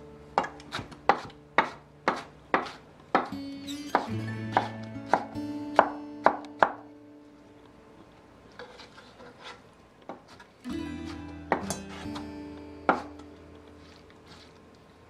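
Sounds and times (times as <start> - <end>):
light guitar music: 0.0 - 1.6, 3.2 - 8.5, 10.6 - 15.0
knife chopping on wooden board: 0.4 - 3.4, 4.0 - 6.8, 11.5 - 12.2, 12.9 - 13.2.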